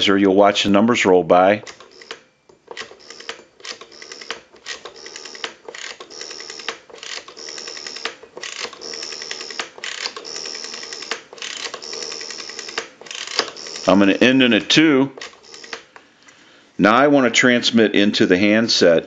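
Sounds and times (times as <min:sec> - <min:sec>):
rotary telephone dial whirring: 0:01.7 - 0:14.2, 0:15.2 - 0:15.9.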